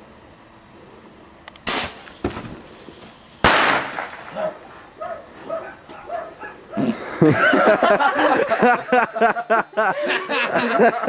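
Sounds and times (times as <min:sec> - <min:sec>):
firecrackers banging: 0:01.6 - 0:04.6.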